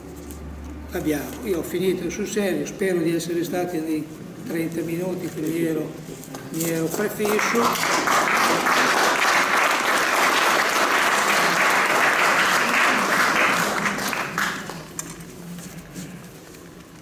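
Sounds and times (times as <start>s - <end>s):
audience applauding: 6.9s - 15.0s.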